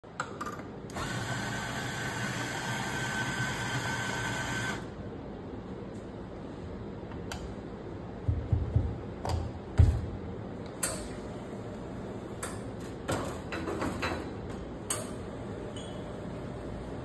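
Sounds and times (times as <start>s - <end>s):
espresso grinder whining: 1.0s - 4.8s.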